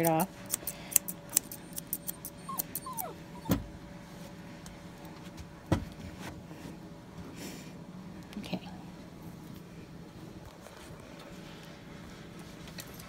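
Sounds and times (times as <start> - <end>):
scissors snipping: 0.0 - 3.0
puppy whining: 1.1 - 3.8.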